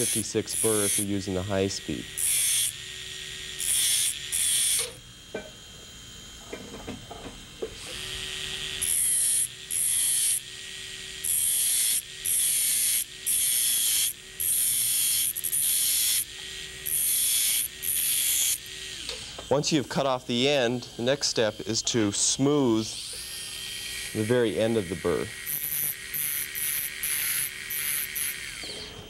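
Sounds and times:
disc grinding metal: 0.0 - 3.0, 11.2 - 29.0
dental motors whirring: 0.0 - 29.0.

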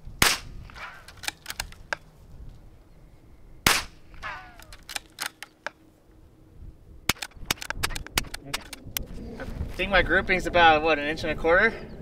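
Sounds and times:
rifle shot: 0.2 - 1.7, 3.6 - 5.5, 7.1 - 8.8.

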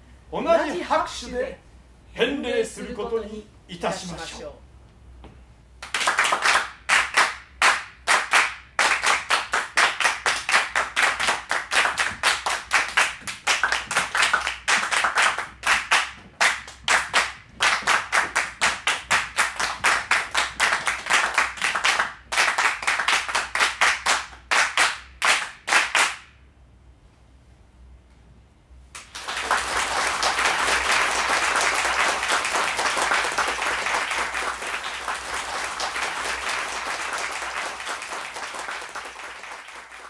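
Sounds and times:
people clapping in rhythm: 5.8 - 26.4, 28.9 - 40.0.

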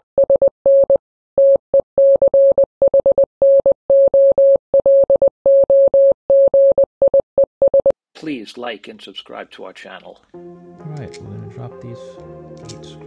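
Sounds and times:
morse code beeps: 0.2 - 7.9.

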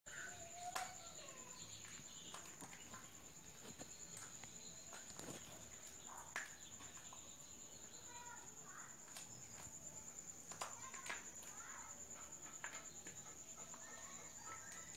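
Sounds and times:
insects trilling: 0.1 - 14.9
faint clicks and rustles: 1.7 - 7.4.

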